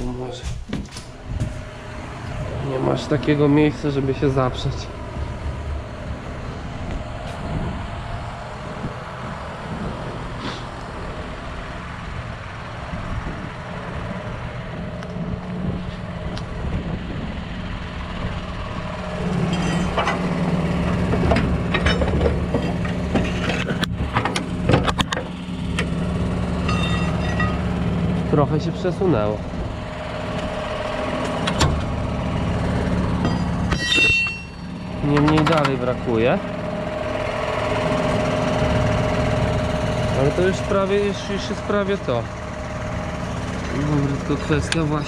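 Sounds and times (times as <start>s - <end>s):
tractor engine idling: 0.0s - 45.0s
metal clanks with spanner: 19.2s - 25.9s, 26.6s - 27.7s, 33.2s - 36.0s.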